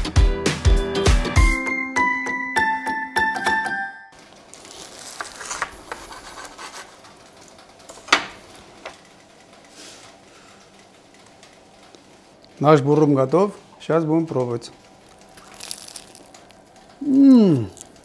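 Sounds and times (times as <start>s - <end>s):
cleaver crunching bread crust: 4.2s - 7.6s, 15.0s - 18.0s.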